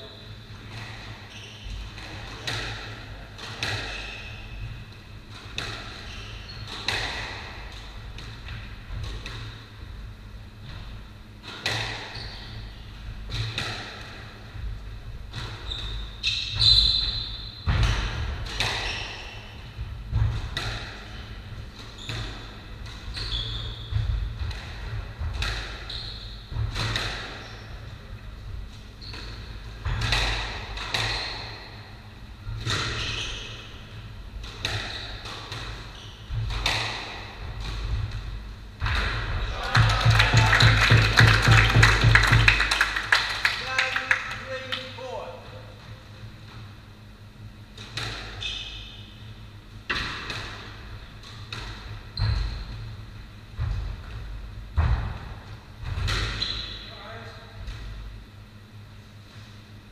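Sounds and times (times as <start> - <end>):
shoes squeaking on wooden floor: 23.1 - 23.9.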